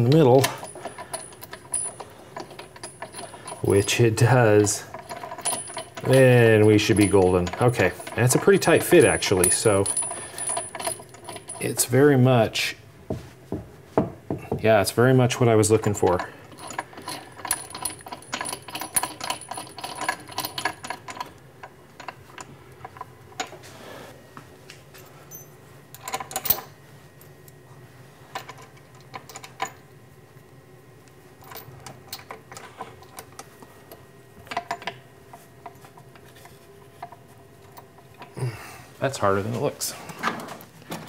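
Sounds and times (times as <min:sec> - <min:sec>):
metal bolt clicking and clinking: 0:00.0 - 0:11.9, 0:15.9 - 0:21.4.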